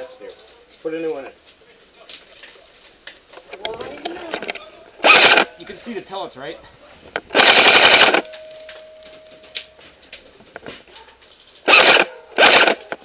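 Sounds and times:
light clicks and rattles: 0.2 - 4.7
airsoft rifle automatic bursts: 4.0 - 5.5, 7.2 - 8.3, 11.6 - 13.0.

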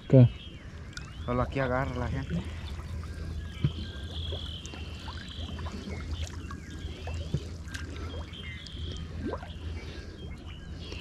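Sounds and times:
steady low hum: 0.0 - 11.0
water splashing and trickling: 0.6 - 11.0
drips plopping into water: 0.9 - 1.2, 2.6 - 9.6.

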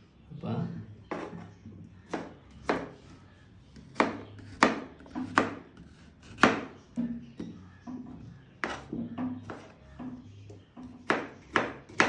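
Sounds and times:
knife chopping fruit on board: 1.1 - 1.4, 2.1 - 3.0, 3.8 - 7.1, 8.6 - 9.8, 10.8 - 12.0.

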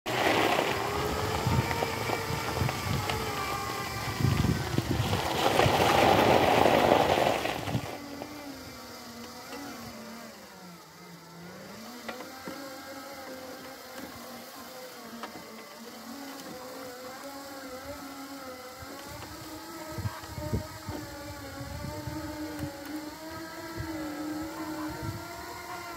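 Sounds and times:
tyres rolling on gravel: 0.1 - 9.7
electric motor whining: 0.1 - 25.9.

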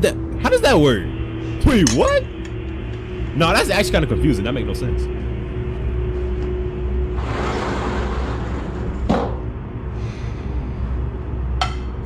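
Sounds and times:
low rumbling drone: 0.0 - 12.0
hissing swell: 0.3 - 8.9.

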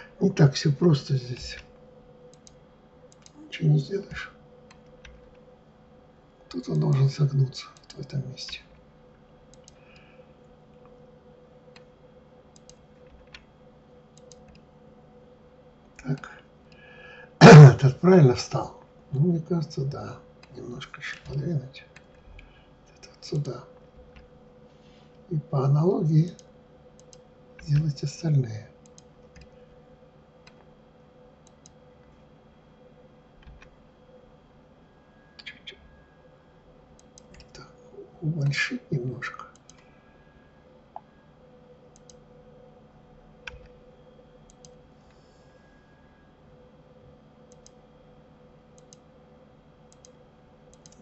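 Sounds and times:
faint hum: 0.0 - 51.0
computer mouse clicks: 2.3 - 3.4, 7.8 - 8.7, 9.5 - 10.1, 12.5 - 13.5, 14.1 - 14.6, 26.3 - 27.8, 28.8 - 29.6, 30.4 - 30.7, 31.4 - 31.8, 33.4 - 33.7, 35.4 - 35.9, 37.0 - 37.6, 39.5 - 39.9, 41.9 - 42.2, 43.4 - 43.8, 44.5 - 45.2, 47.5 - 47.8, 48.7 - 49.1, 49.9 - 51.0
keyboard clicks: 2.3 - 3.4, 9.5 - 10.1, 12.5 - 13.5, 14.2 - 14.6, 26.3 - 27.8, 28.8 - 29.6, 35.4 - 35.8, 37.0 - 37.6, 41.9 - 42.2, 43.4 - 43.8, 44.5 - 44.8, 47.5 - 47.8, 48.8 - 49.0, 49.9 - 51.0
mouse and keyboard clicks: 49.9 - 51.0.

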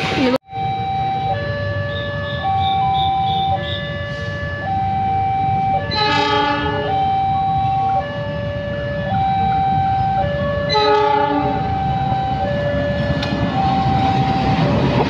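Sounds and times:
level crossing alarm two-tone: 0.4 - 14.9
train horn blast: 5.8 - 6.9, 10.7 - 11.7.

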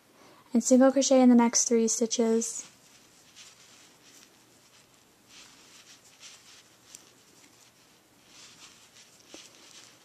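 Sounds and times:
yarn rustling through crochet hook: 2.0 - 10.0.

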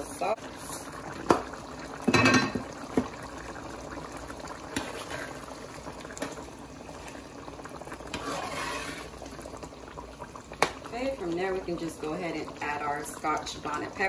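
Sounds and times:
sauce bubbling in a pot: 0.0 - 14.0
metal spoon stirring: 8.1 - 9.2.

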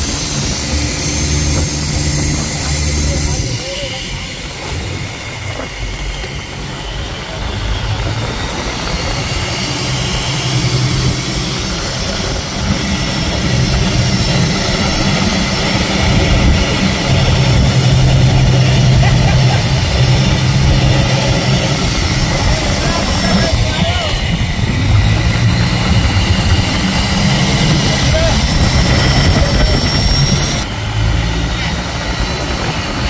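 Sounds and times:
boat engine droning: 0.0 - 33.0
rushing noise: 0.0 - 33.0.

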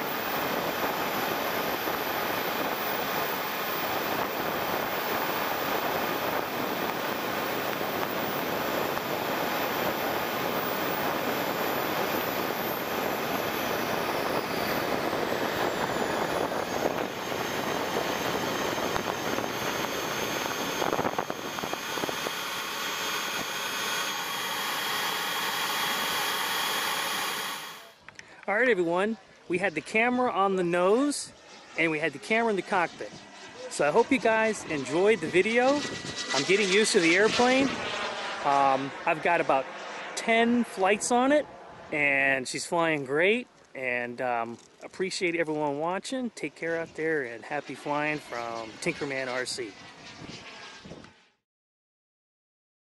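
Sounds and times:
airflow rushing: 0.0 - 27.9
jet turbine whine: 0.0 - 51.4.

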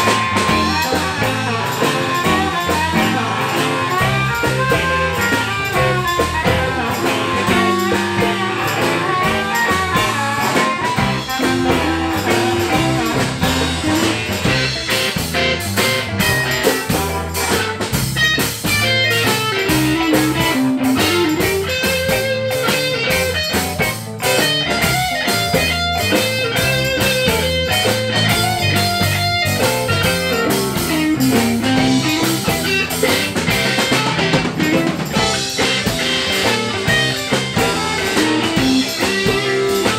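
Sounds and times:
blues band playing: 0.0 - 39.9
lead guitar bent notes: 0.0 - 39.9.

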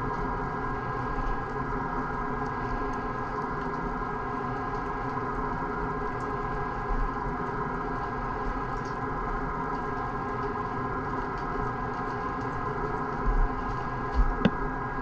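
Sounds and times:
steady machine hum: 11.0 - 15.0.

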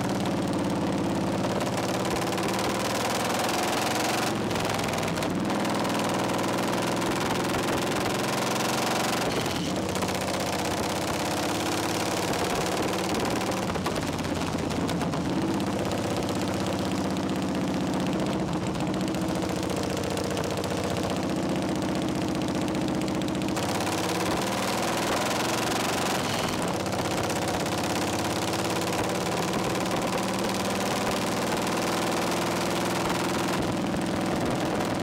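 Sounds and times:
motorcycle engine at road speed: 0.0 - 35.0.

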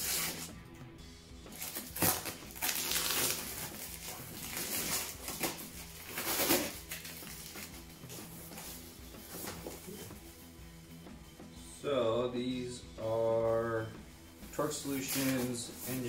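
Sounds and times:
paper and plastic bag crinkling: 1.6 - 7.7.

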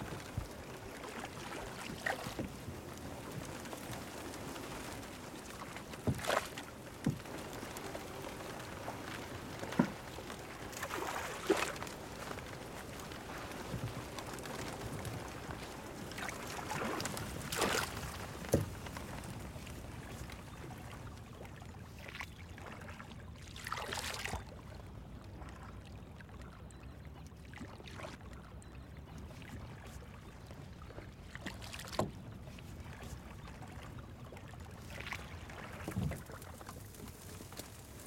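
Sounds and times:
boat pole swishing and splashing: 0.0 - 24.5, 29.4 - 38.0
low water wash: 0.0 - 26.8.

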